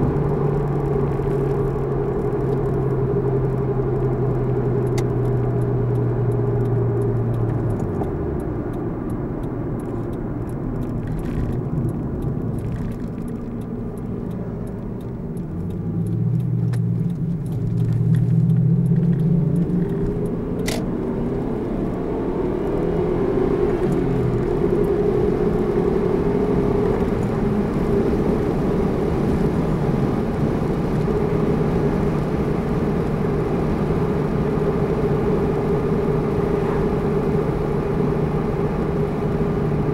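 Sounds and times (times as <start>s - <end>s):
car engine: 0.0s - 39.9s
road noise: 0.0s - 39.9s
sharp click: 9.8s - 20.9s.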